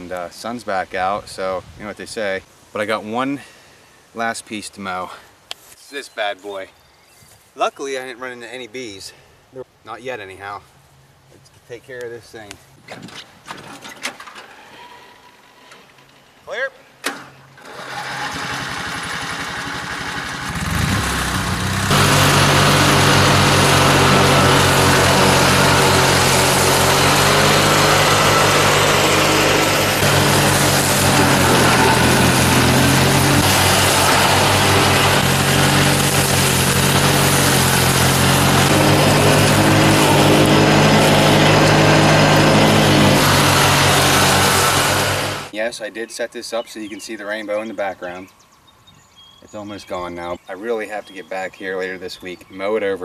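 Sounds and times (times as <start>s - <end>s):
garden tractor engine mowing: 17.1s - 45.6s.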